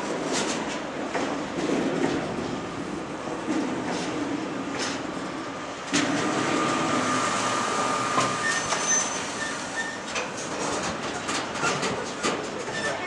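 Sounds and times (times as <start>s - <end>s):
train wheels clicking over rail joints: 8.1s - 13.0s
high squeal: 8.4s - 10.0s.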